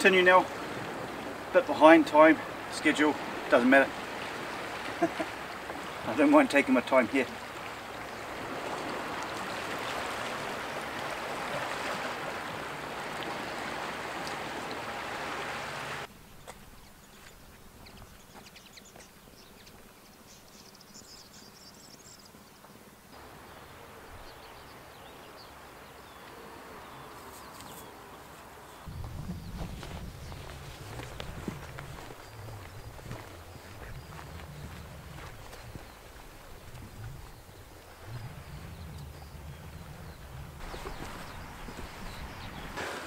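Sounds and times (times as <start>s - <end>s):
sea water washing around rocks: 7.2s - 16.1s
small birds chirping: 16.3s - 42.8s
footsteps on a path: 16.4s - 19.1s, 28.8s - 39.2s, 40.6s - 43.0s.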